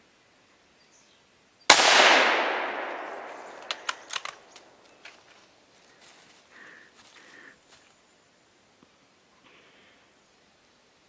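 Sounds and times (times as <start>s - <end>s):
rifle shot echoing: 1.7s - 4.8s
short sharp clicks: 3.5s - 4.7s.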